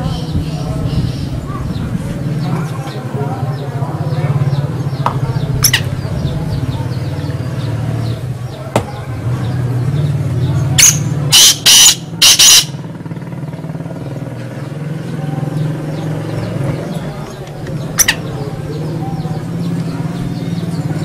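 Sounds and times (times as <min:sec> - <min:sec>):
francolin calling: 0:10.5 - 0:12.9, 0:16.8 - 0:20.8.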